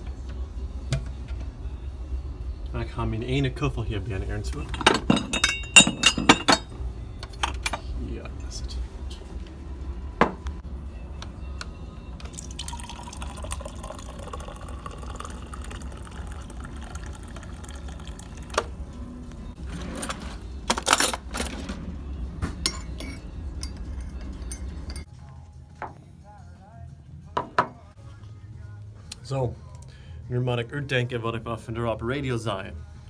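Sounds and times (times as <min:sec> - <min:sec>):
spoon clinking against mug: 0:05.0 - 0:06.7, 0:22.6 - 0:25.0
coffee pouring into mug: 0:12.2 - 0:18.8.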